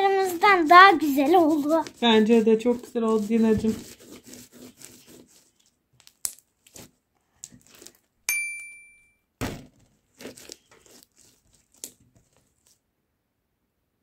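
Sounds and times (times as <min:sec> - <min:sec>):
short ringing clink: 0:08.3 - 0:09.2
dull thud: 0:09.4 - 0:09.8.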